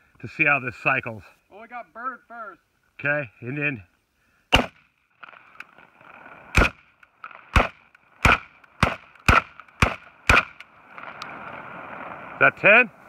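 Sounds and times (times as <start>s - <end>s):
shotgun shots: 4.5s - 5.6s, 6.5s - 10.6s.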